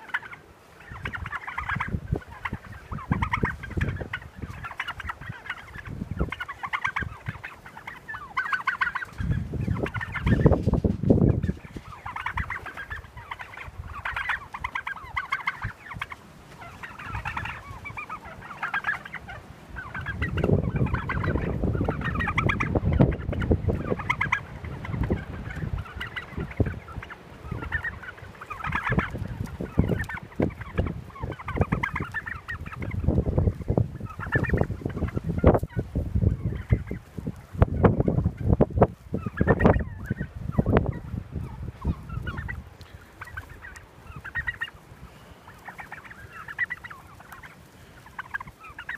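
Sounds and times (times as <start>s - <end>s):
turkeys clucking and gobbling: 0.0s - 48.9s
low thuds and rustling: 9.1s - 11.9s.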